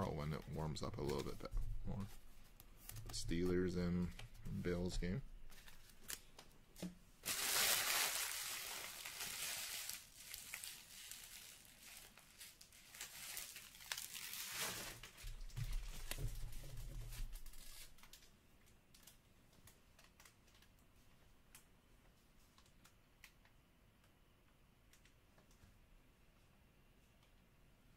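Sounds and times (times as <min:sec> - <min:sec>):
wrapper crinkling and tearing: 0:07.2 - 0:15.2, 0:17.2 - 0:18.2.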